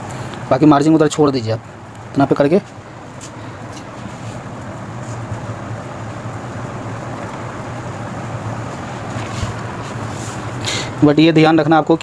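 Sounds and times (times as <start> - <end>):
fabric rustling: 8.6 - 10.6.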